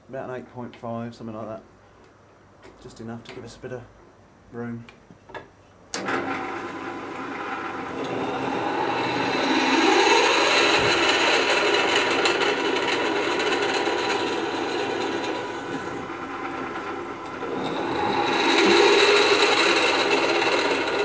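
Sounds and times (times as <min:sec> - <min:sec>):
drill bit cutting through metal: 0:08.0 - 0:21.0.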